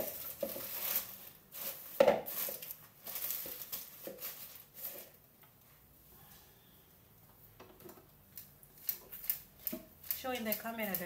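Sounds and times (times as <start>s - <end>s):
paper rustling and crinkling: 0.0s - 5.2s.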